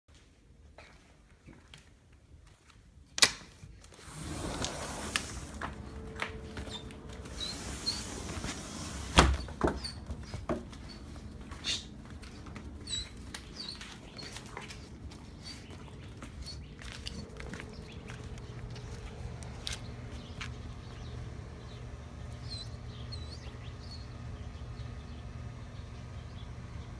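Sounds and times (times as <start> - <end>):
outdoor noise: 0.1 - 26.9.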